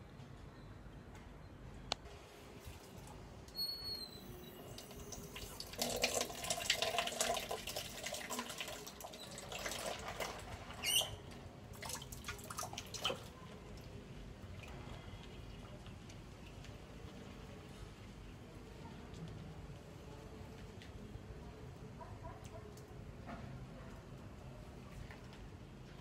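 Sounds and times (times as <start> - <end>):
water splashing and pouring: 2.4 - 3.3, 4.7 - 15.0
short high squeak: 3.5 - 4.9, 10.8 - 11.2.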